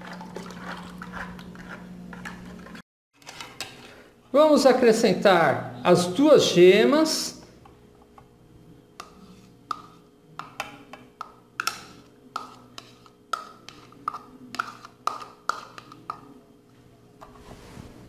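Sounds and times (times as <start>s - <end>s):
metal spoon tapping plastic bowl: 9.0s - 16.2s.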